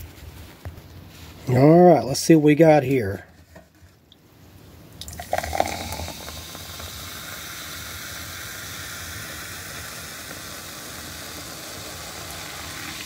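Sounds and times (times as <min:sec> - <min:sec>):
soda fizzing: 0:05.0 - 0:13.0
soda pouring into a glass: 0:05.0 - 0:13.0.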